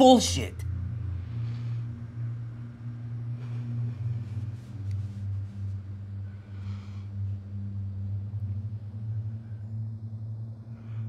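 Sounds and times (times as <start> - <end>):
steady low drone: 0.0 - 11.0.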